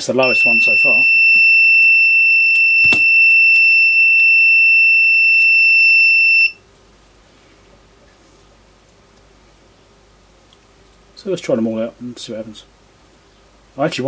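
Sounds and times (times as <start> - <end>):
long electronic beep: 0.2 - 6.6.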